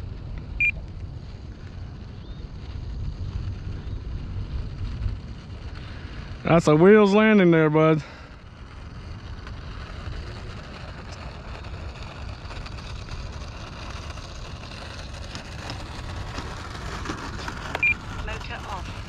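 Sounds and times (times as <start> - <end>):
electric motor and propeller whirring: 0.0 - 19.0
wind buffeting microphone: 0.0 - 19.0.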